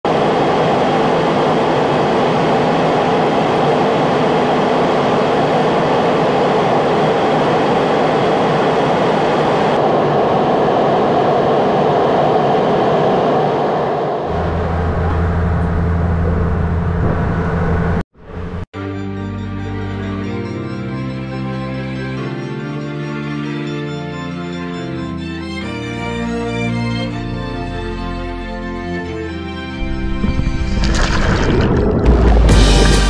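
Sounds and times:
airliner cabin noise: 0:00.1 - 0:18.6.

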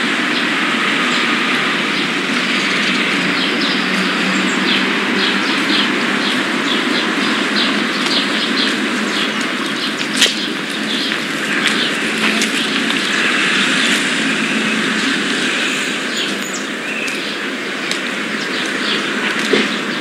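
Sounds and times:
birds chirping: 0:00.0 - 0:20.0
loud steady rushing noise: 0:00.0 - 0:20.0.

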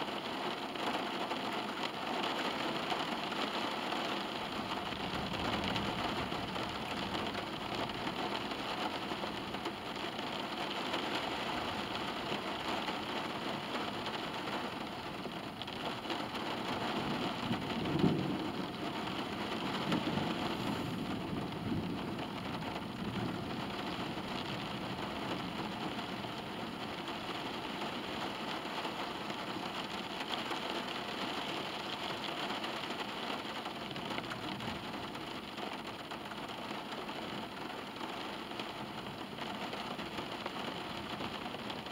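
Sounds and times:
rain on car roof: 0:00.0 - 0:41.9.

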